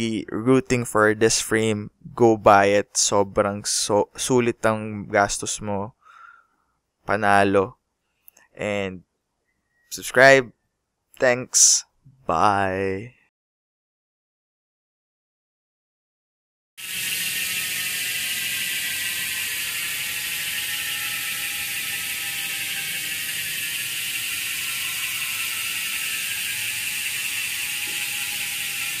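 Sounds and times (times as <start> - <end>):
bicycle freehub buzzing whir: 16.8 - 29.0.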